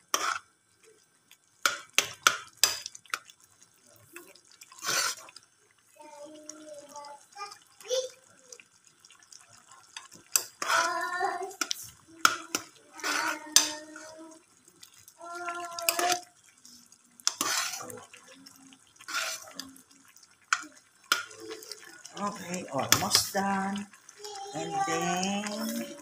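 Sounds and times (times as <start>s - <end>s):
liquid sloshing: 7.4s - 26.0s
person's voice: 21.4s - 26.0s.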